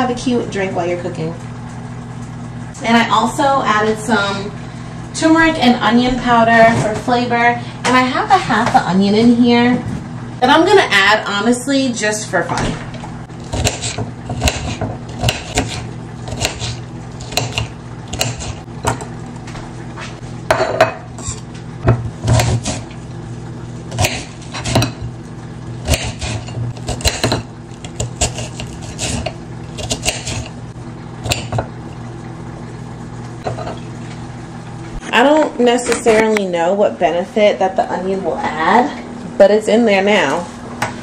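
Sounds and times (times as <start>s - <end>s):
steady low hum: 0.0s - 41.0s
knife striking plate: 25.9s - 27.4s.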